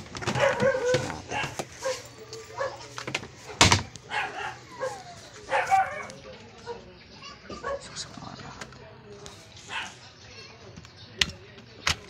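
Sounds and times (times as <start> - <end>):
dog yapping: 0.3 - 2.8, 4.1 - 6.2.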